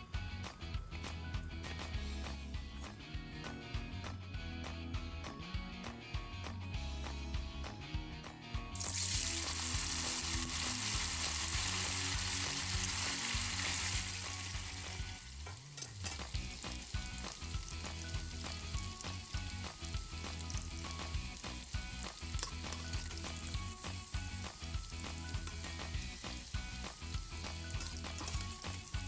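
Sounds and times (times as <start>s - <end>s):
tofu sizzling in oil: 8.8s - 29.0s
spatula clicking in pan: 20.2s - 23.5s, 25.0s - 26.0s, 27.4s - 28.9s.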